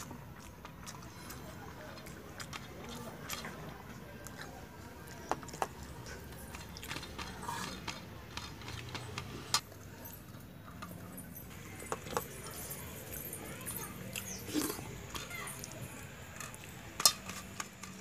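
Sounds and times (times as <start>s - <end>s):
clicks and taps of eating: 0.0s - 9.7s, 10.7s - 12.7s.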